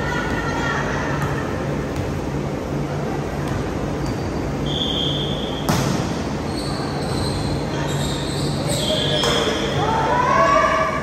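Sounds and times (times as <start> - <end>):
whistle blast: 4.6 - 5.7
sneaker squeaks on hardwood: 5.6 - 9.7.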